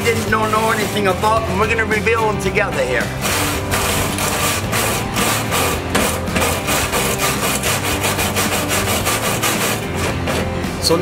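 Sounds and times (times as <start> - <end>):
wire brush scrubbing metal: 3.1 - 10.8.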